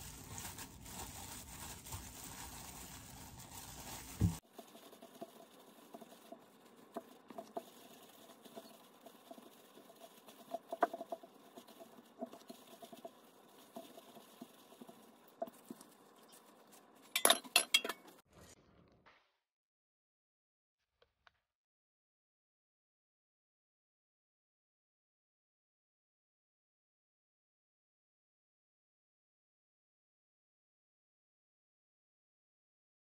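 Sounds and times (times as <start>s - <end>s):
faint rustling of crumbs: 0.0s - 17.3s
glass clinks: 17.2s - 18.1s.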